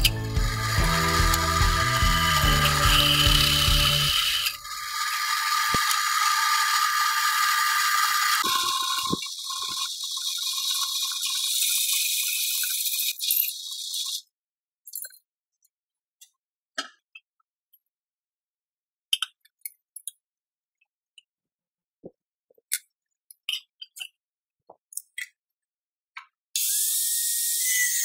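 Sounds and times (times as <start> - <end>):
drill press rattling: 0.0 - 11.4
high-pitched metal cutting hiss: 0.0 - 13.7.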